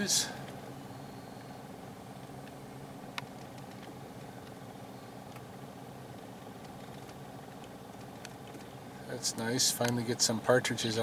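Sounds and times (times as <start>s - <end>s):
vehicle engine idling: 0.0s - 11.0s.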